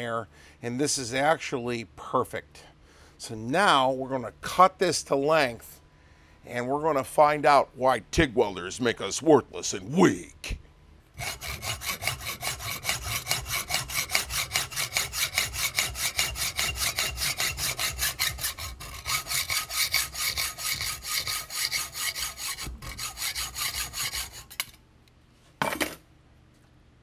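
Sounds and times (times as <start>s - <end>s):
hacksaw cutting steel: 11.2s - 24.8s.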